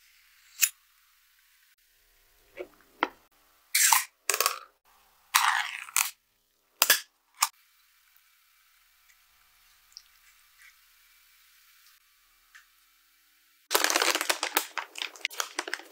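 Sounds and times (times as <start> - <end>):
metal lid tearing and scraping: 5.4 - 6.2.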